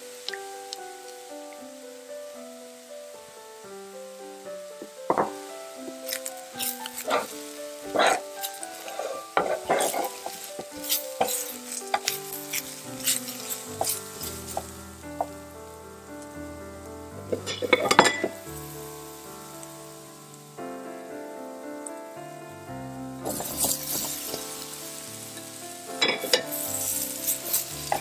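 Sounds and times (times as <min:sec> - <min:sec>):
onions sizzling in a frying pan: 0:00.0 - 0:03.4, 0:04.2 - 0:16.3, 0:17.1 - 0:20.4, 0:23.1 - 0:28.0
spatula stirring and scraping: 0:06.1 - 0:15.3, 0:23.2 - 0:28.0.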